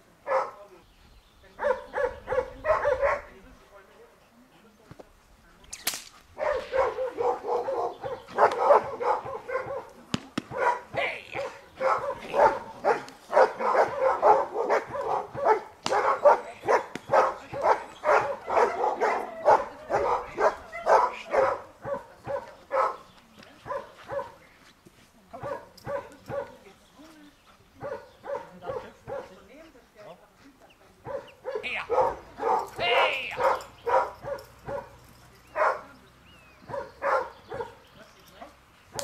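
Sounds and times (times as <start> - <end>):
dog barking rapidly: 0.3 - 0.6, 1.6 - 3.3, 6.4 - 9.9, 10.5 - 23.0, 27.8 - 29.3, 31.1 - 35.0, 35.6 - 35.9, 36.7 - 37.8
sharp cracks: 5.7 - 6.8, 15.8 - 16.2.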